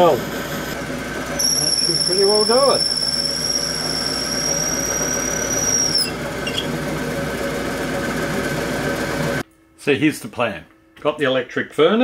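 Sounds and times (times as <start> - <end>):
metal lathe drilling whine: 0.0 - 7.8
fume extractor running: 0.0 - 9.4.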